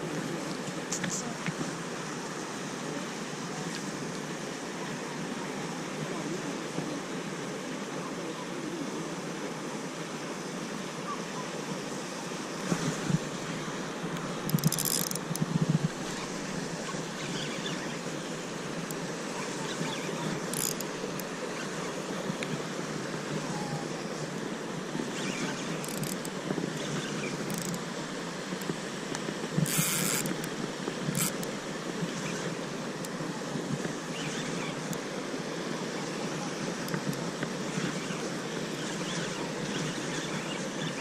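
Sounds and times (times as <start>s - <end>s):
wind on microphone: 12.5s - 41.0s.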